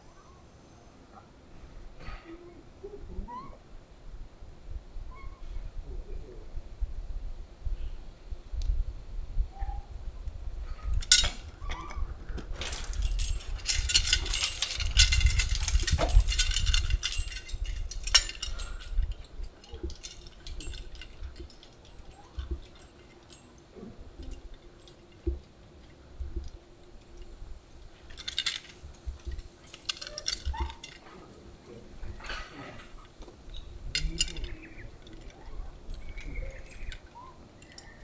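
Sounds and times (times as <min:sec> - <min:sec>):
metal swing chains clinking: 0:10.8 - 0:38.0.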